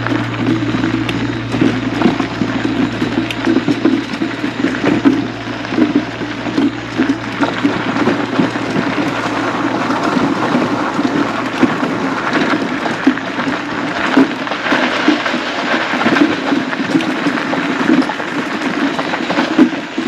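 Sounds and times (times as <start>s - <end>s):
tires crunching on gravel: 0.0s - 20.0s.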